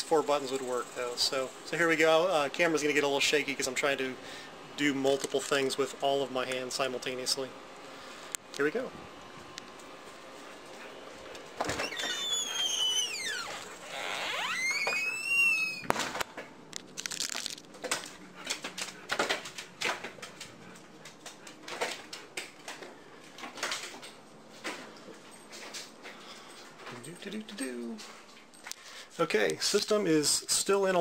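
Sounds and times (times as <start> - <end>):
door hinge squealing: 11.7 - 15.9.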